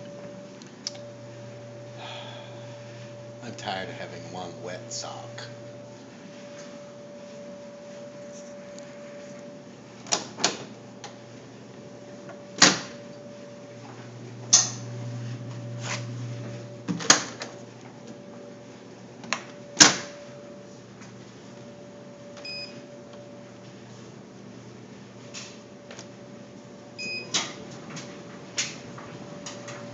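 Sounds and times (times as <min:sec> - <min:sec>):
laundry appliance humming: 0:00.0 - 0:29.9
dryer electronic beep: 0:22.4 - 0:22.9, 0:27.0 - 0:27.4.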